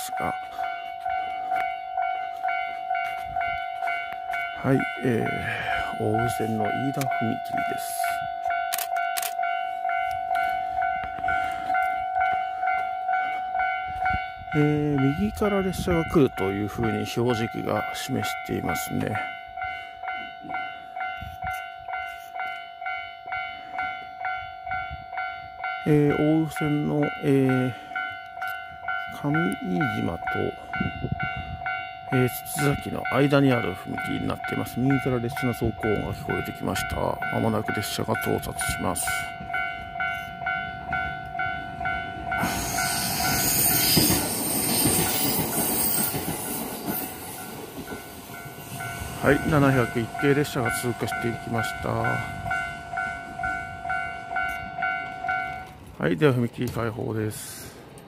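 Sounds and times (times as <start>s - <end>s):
electric train passing: 0.0s - 58.0s
level crossing warning bell: 0.0s - 58.0s.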